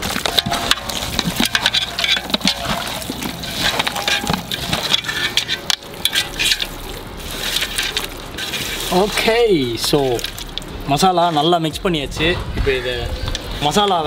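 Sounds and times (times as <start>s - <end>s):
hands squelching in wet paste: 0.0s - 11.0s.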